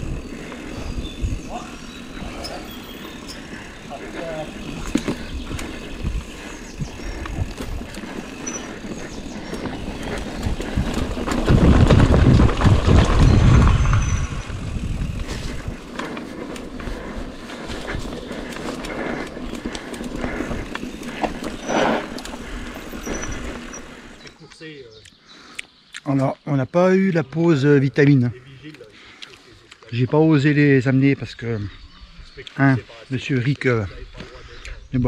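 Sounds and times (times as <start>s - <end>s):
bike rattling and knocking: 0.0s - 24.2s
bike tyres on rough ground: 0.0s - 24.4s
heavy low rumble: 10.4s - 15.8s.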